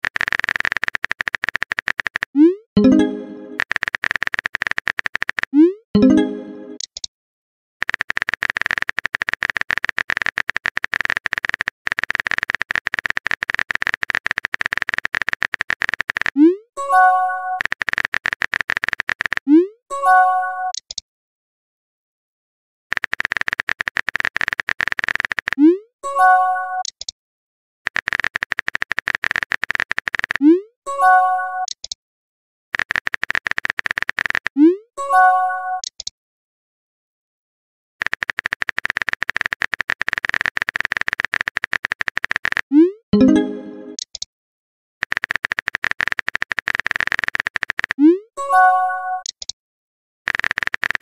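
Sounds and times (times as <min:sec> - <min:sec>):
simulated keyboard typing clicks: 0:00.0 - 0:07.1, 0:07.8 - 0:16.6, 0:17.4 - 0:19.7, 0:20.7 - 0:21.0, 0:22.9 - 0:25.8, 0:26.8 - 0:27.2, 0:27.9 - 0:30.7, 0:31.6 - 0:32.0, 0:32.8 - 0:34.8, 0:35.8 - 0:36.2, 0:38.0 - 0:44.3, 0:45.0 - 0:48.3, 0:49.1 - 0:49.6, 0:50.3 - 0:51.0.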